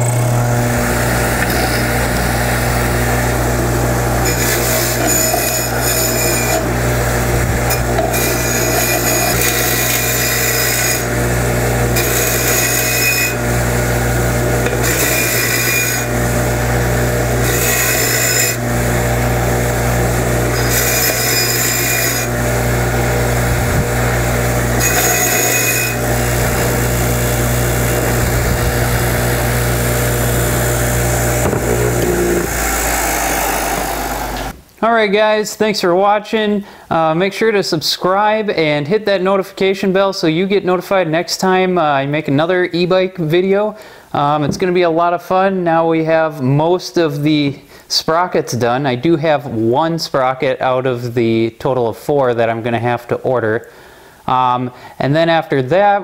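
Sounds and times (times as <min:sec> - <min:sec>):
wire wheel scratching steel: 0:00.0 - 0:34.5
bench grinder motor running: 0:00.0 - 0:34.6.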